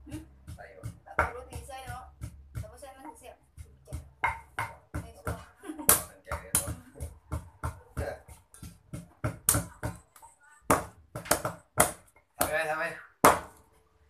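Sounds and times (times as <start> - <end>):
pestle pounding in clay mortar: 0.0 - 13.6
cleaver chopping on wooden block: 3.6 - 10.0, 10.7 - 12.6, 13.2 - 13.6.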